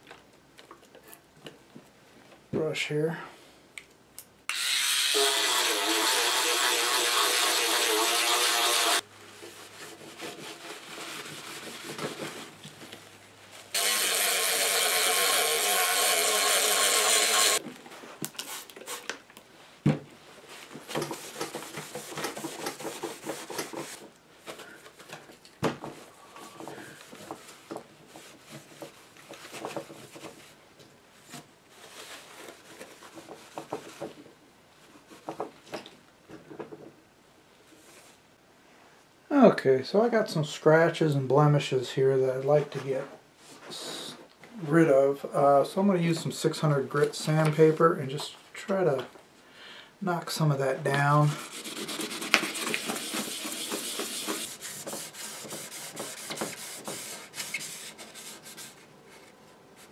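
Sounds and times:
spin brush buzzing: 4.5 - 9.0, 13.8 - 17.6.

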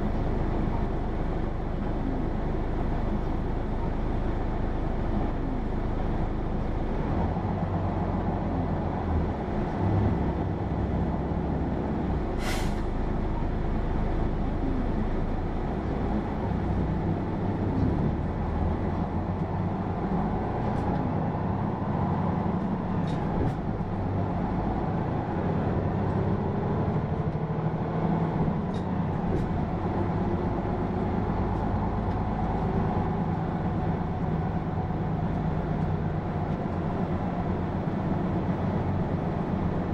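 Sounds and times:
bus diesel engine running: 0.0 - 39.9
hiss of air: 12.4 - 12.9.

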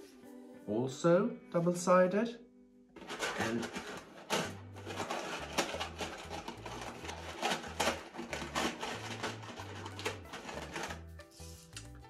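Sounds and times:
game pieces clicking and rattling: 3.0 - 11.0
cardboard rustling and scraping: 3.0 - 11.7.

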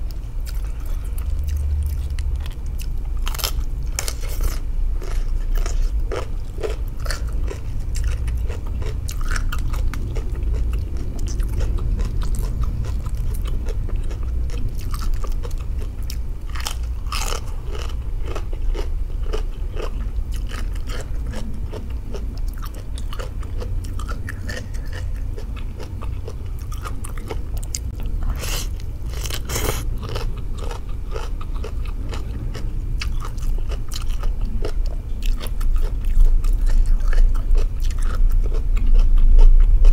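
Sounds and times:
crunching raw cabbage: 23.8 - 39.9.

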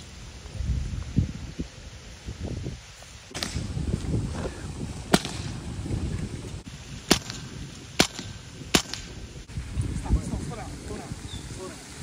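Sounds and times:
air rifle shots: 3.3 - 3.7, 5.1 - 5.6, 7.1 - 9.2.

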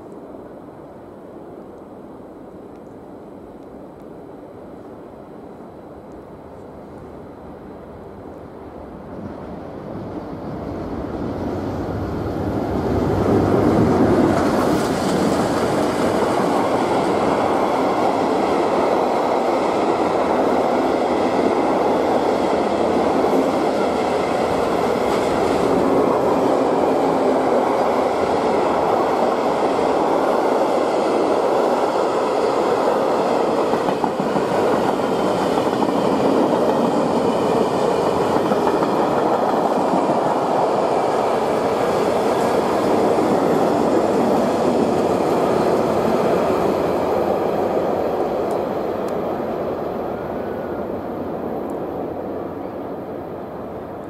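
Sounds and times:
steel wheels running on rails: 10.2 - 49.2.

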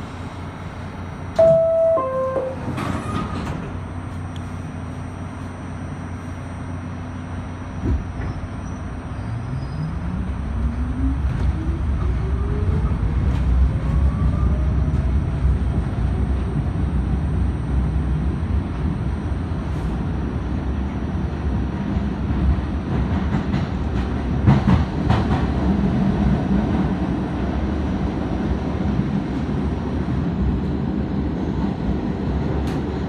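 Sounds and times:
train doors closing: 1.3 - 4.3, 32.5 - 33.0
two-note descending door chime: 1.4 - 2.9.

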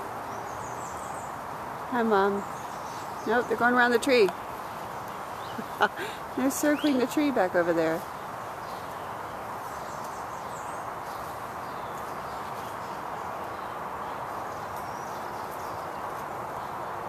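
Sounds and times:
outdoor background noise: 0.0 - 17.0.

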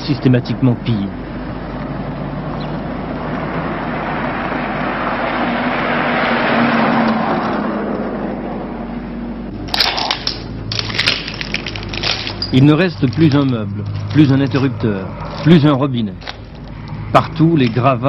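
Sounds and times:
motor vehicle passing: 0.0 - 18.0
sharp crackling clicks: 9.7 - 17.0.

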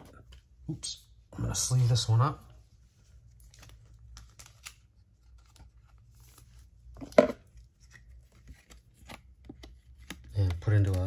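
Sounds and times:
plastic sleeve rustling and clicks: 3.3 - 11.0.

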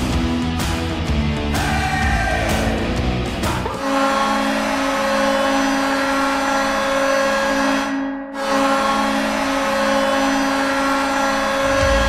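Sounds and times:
goal horn blasts: 3.6 - 12.0.

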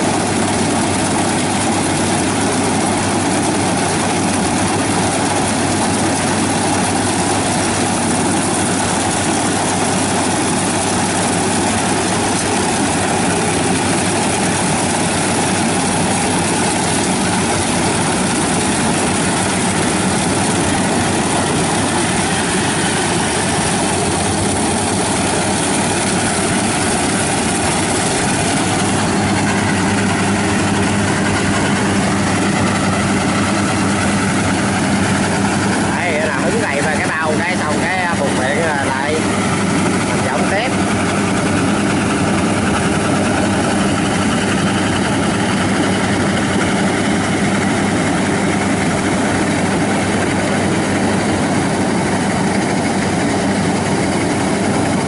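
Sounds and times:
harvester engine drone: 0.0 - 55.0
threshing machinery clatter: 0.0 - 55.0.

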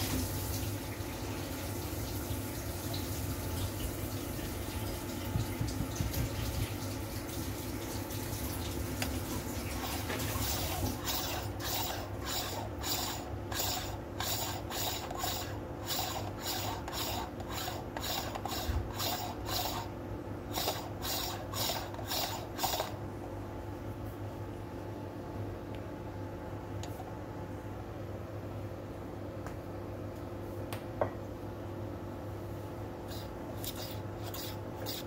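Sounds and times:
tool rasping in coffee grounds: 10.4 - 23.0, 33.0 - 35.0.

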